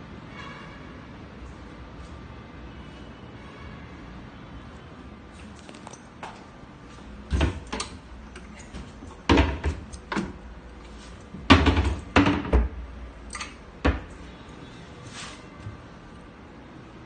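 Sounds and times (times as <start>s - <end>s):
wooden cabinet doors knocking: 11.4s - 12.8s.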